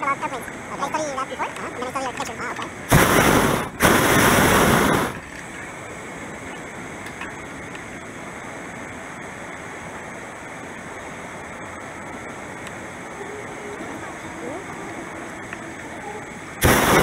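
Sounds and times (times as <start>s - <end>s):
propane burner blast: 2.7s - 13.2s, 16.5s - 17.0s
steady hiss of air: 2.7s - 17.0s.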